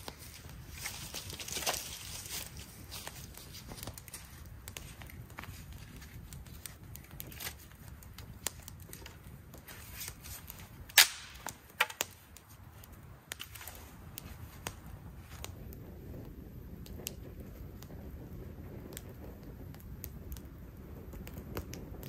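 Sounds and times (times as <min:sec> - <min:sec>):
dry branch snapping: 0:00.0 - 0:15.6
campfire crackling and popping: 0:00.0 - 0:22.0.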